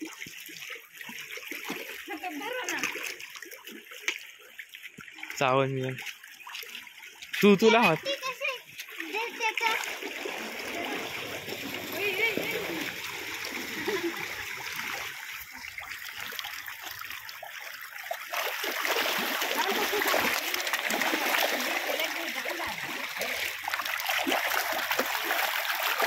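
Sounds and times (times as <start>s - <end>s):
fish splashing at water surface: 0.0s - 5.3s, 5.9s - 26.0s.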